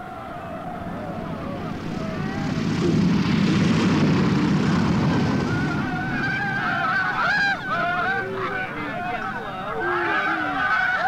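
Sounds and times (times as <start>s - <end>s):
propeller aeroplane engine: 0.0s - 9.8s
faint voices crying out: 5.2s - 11.0s.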